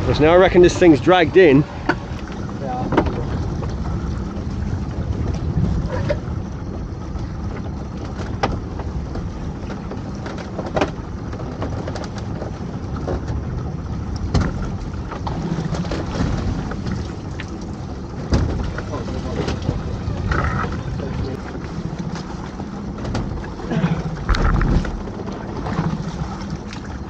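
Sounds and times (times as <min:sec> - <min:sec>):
boat motor running: 0:00.0 - 0:27.0
knocks and clicks of hauling gear: 0:07.6 - 0:13.5, 0:14.1 - 0:19.8.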